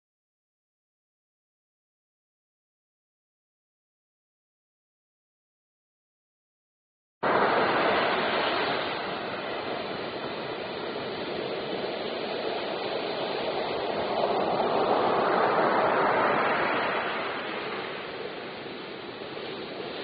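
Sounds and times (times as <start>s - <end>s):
ocean surf breaking: 7.2s - 20.0s.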